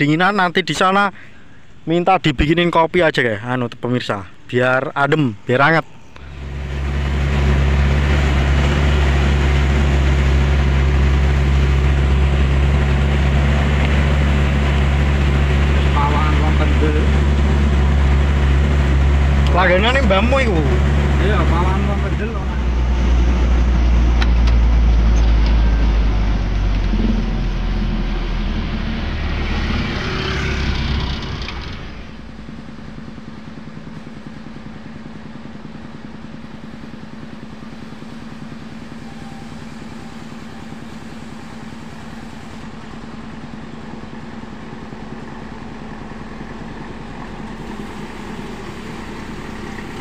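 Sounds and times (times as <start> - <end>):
diesel engine running: 5.6 - 50.0.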